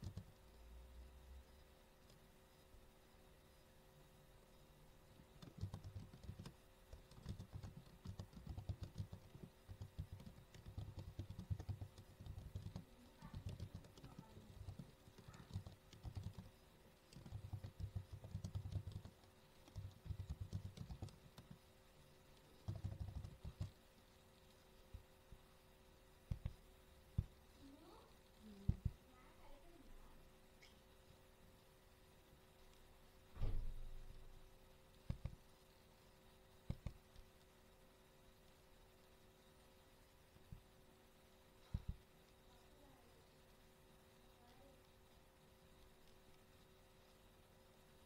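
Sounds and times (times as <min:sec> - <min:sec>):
keyboard typing: 0:00.0 - 0:00.4, 0:05.3 - 0:21.7, 0:22.3 - 0:23.8, 0:26.3 - 0:26.6, 0:35.0 - 0:35.4, 0:36.7 - 0:37.2.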